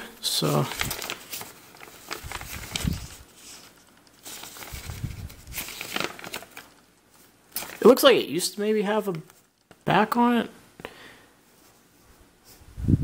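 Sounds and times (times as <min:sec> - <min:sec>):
paper pages rustling: 0:00.3 - 0:08.1, 0:09.1 - 0:09.9.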